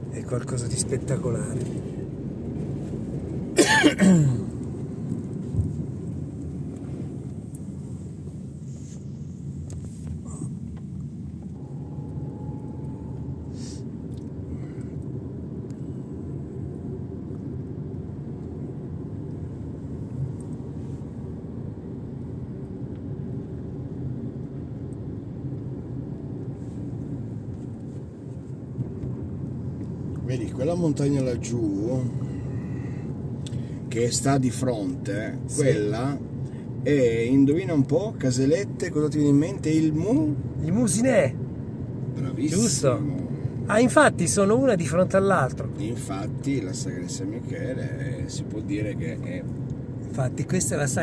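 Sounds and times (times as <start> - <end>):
person coughing: 3.6 - 4.5
car engine and tyres drone: 4.2 - 51.0.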